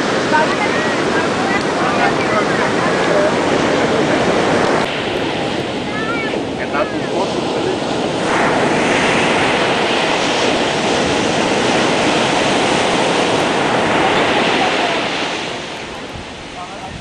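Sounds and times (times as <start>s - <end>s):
ocean waves breaking: 0.0s - 17.0s.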